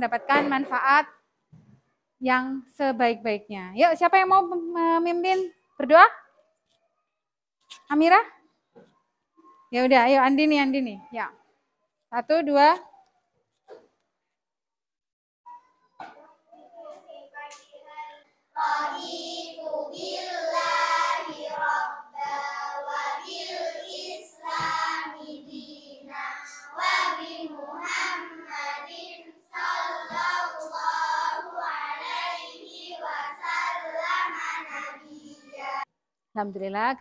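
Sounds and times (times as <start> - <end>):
children chanting in unison: 18.6 - 35.8.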